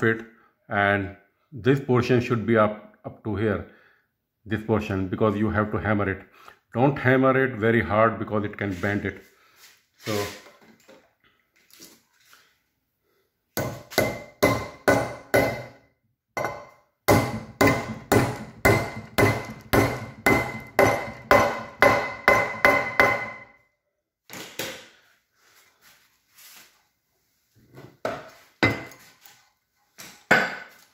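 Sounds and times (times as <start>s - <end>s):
hammer striking metal bolt: 13.6s - 15.8s, 16.4s - 23.5s.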